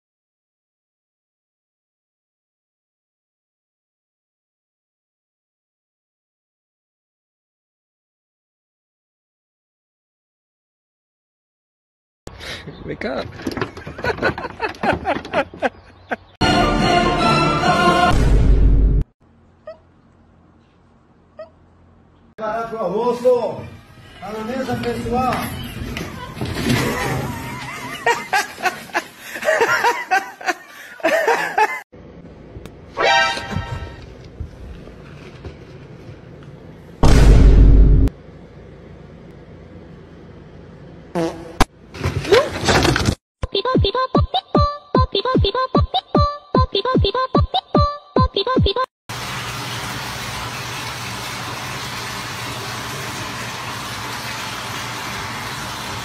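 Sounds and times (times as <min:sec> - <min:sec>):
person laughing: 0:13.8 - 0:16.4, 0:27.0 - 0:31.8
low hum: 0:37.0 - 0:41.0.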